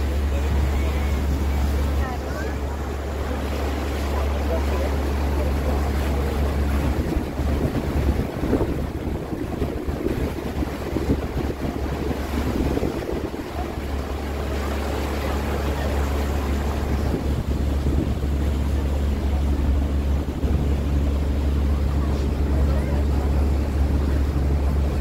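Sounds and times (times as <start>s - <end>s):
boat engine humming: 0.0s - 25.0s
water wash: 0.0s - 25.0s
wind buffeting microphone: 5.9s - 25.0s.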